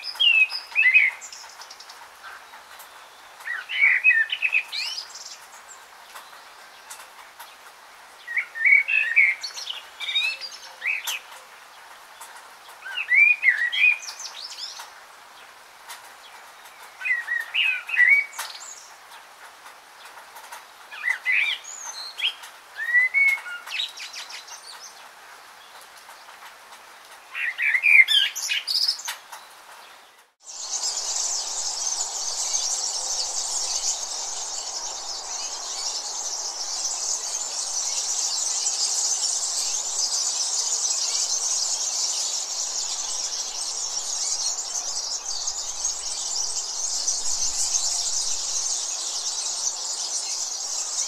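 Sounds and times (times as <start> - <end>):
bird chirping: 0.0 - 15.0, 16.2 - 19.1, 20.0 - 25.0, 27.2 - 51.0
high-pitched insect chorus: 30.4 - 51.0.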